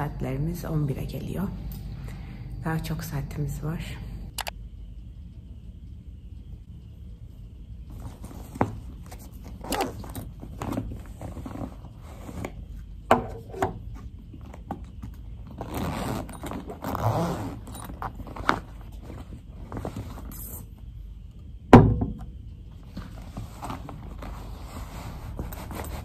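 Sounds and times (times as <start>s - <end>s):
rustling of fabric backpack: 15.4s - 20.4s, 22.9s - 26.0s.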